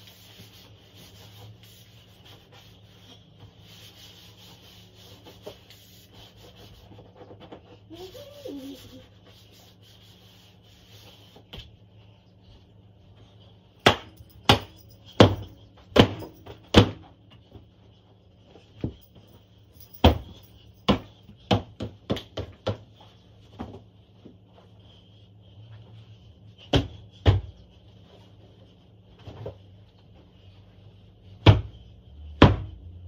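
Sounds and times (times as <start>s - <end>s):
steady low hum: 0.0s - 33.0s
cushions being beaten: 13.8s - 17.0s.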